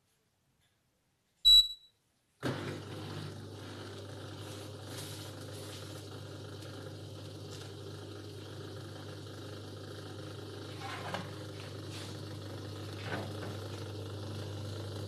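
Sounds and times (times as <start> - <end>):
dishwasher beep: 1.5 - 1.9
dishwasher humming: 2.4 - 15.0.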